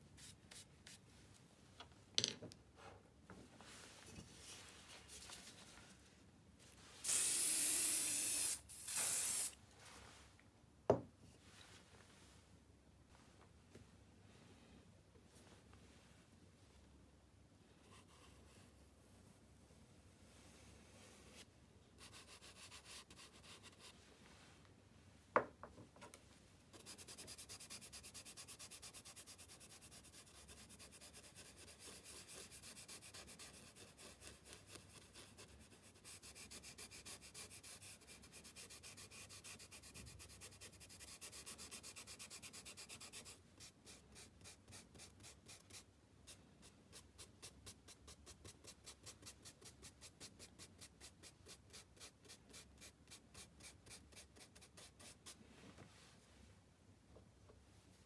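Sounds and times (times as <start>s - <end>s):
charcoal rubbing on paper: 22.0s - 24.0s, 26.7s - 55.4s.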